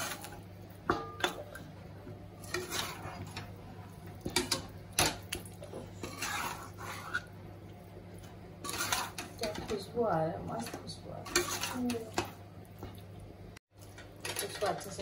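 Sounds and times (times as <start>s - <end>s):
metal spatula scraping a wok: 0.0s - 0.4s, 2.4s - 3.6s, 5.8s - 7.4s, 8.6s - 9.9s, 10.6s - 12.2s.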